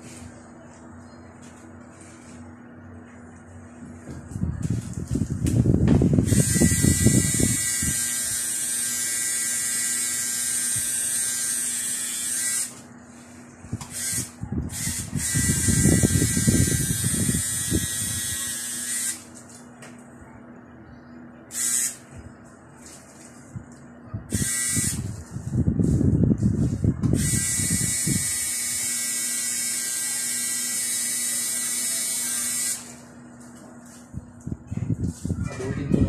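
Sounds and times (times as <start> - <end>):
electric tattoo machine buzzing: 6.2 - 12.8, 13.9 - 19.3, 21.5 - 22.0, 24.3 - 25.1, 27.1 - 33.0.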